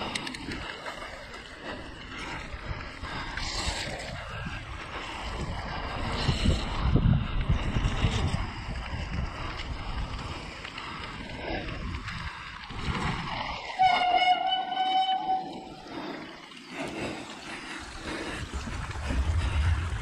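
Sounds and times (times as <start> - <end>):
bike tyre and frame rattle: 0.0 - 20.0
wind on microphone: 2.2 - 15.6, 17.5 - 20.0.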